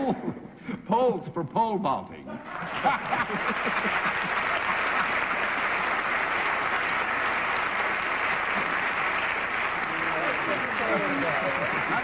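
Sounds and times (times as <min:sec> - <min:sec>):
audience applauding: 0:02.6 - 0:12.0.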